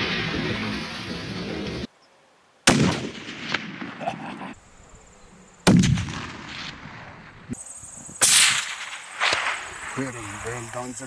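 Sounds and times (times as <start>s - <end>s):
gunshot echo: 2.7s - 4.4s, 5.6s - 7.6s, 8.2s - 10.1s
rifle shots: 2.7s - 4.4s, 5.6s - 7.5s, 8.2s - 10.1s.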